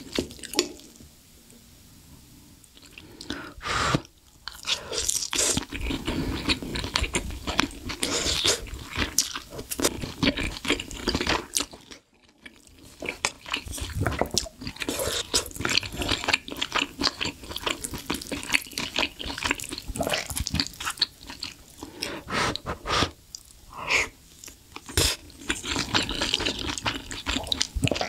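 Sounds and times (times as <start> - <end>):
chewing with wet mouth clicks: 4.4 - 21.9, 24.3 - 28.0.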